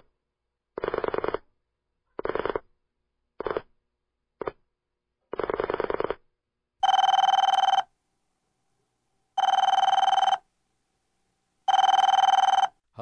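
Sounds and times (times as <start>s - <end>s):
telephone ringing with warble: 6.8s - 7.9s, 9.4s - 10.4s, 11.7s - 12.8s.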